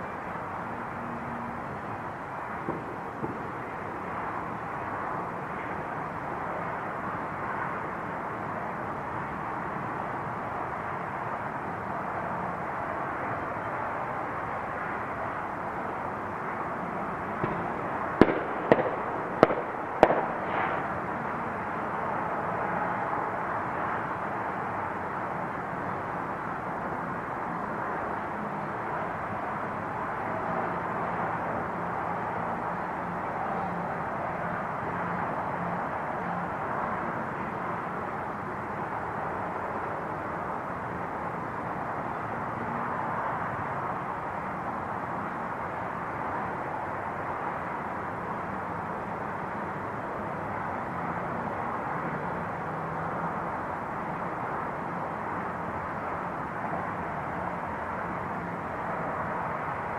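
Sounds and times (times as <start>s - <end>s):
outdoor background noise: 0.0s - 59.9s
fireworks bangs: 17.4s - 20.9s.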